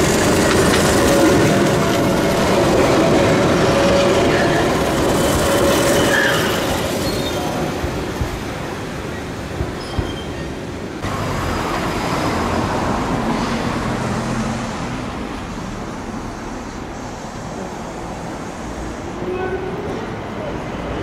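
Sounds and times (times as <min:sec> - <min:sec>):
steady traffic hum: 0:10.6 - 0:21.0.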